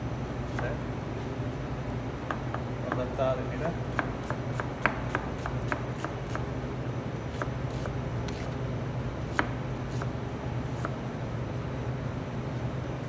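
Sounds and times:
steady low hum: 0:00.0 - 0:13.0
knife chopping on cutting board: 0:03.9 - 0:06.4, 0:09.3 - 0:10.1.

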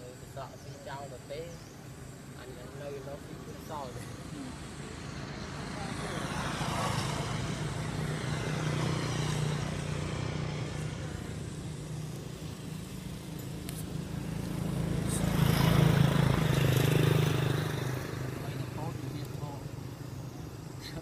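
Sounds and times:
vehicle engine running: 0:07.2 - 0:21.0.

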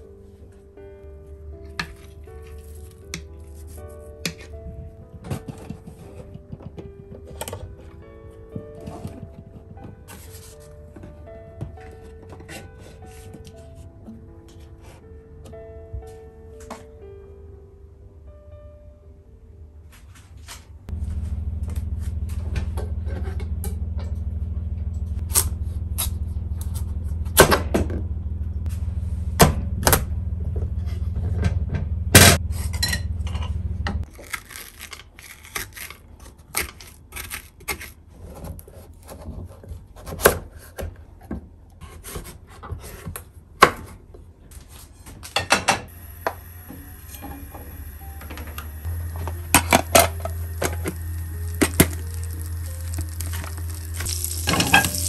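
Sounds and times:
steady low hum: 0:20.9 - 0:34.1, 0:45.9 - 0:55.0
butter hissing in frying pan: 0:49.1 - 0:55.0.

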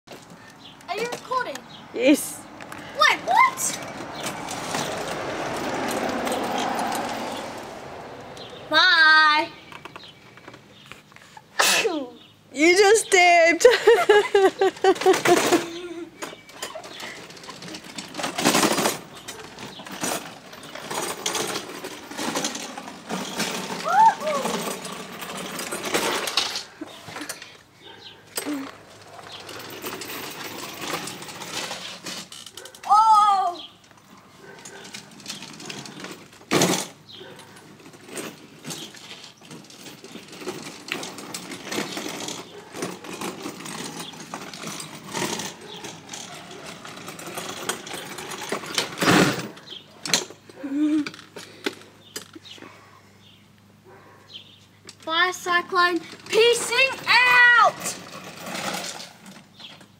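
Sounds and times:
pedal kart rolling on asphalt: 0:00.1 - 0:11.4, 0:12.2 - 0:52.6, 0:54.4 - 0:59.9
kart frame rattling clicks: 0:03.7 - 0:08.6, 0:09.7 - 0:10.8, 0:14.3 - 0:33.0, 0:33.8 - 0:52.5.

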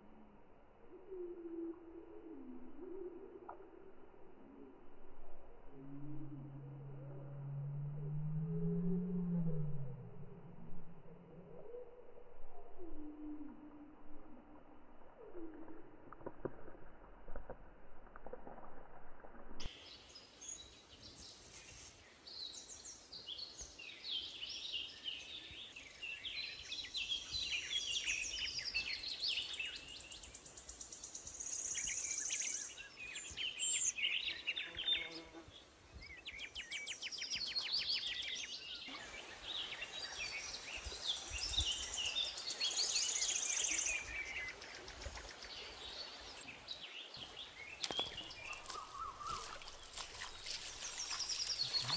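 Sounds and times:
birds chirping: 0:19.7 - 0:51.9.

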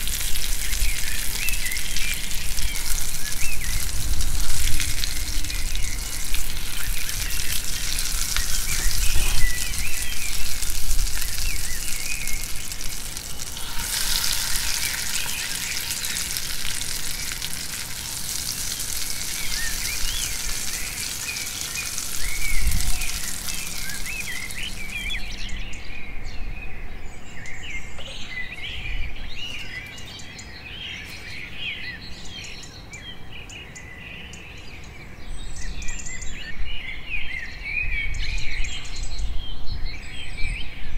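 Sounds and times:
vegetables sizzling in a frying pan: 0:00.0 - 0:25.4
birds chirping: 0:00.0 - 0:39.2.

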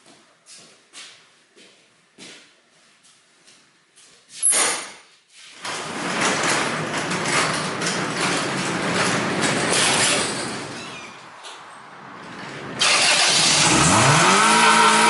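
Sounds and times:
engine cranking: 0:12.2 - 0:15.0
engine racing at full revs: 0:12.8 - 0:15.0.

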